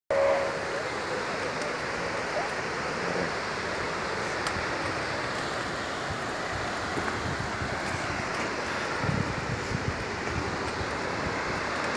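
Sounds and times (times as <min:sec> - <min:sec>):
short tone: 0:00.1 - 0:00.7
distant waterfall roar: 0:00.1 - 0:11.9.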